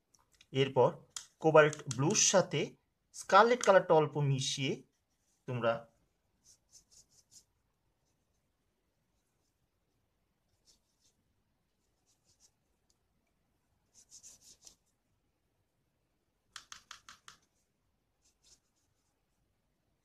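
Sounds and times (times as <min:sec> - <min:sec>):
brush strokes on paper: 0:04.8 - 0:12.8, 0:13.8 - 0:15.0, 0:17.4 - 0:19.5.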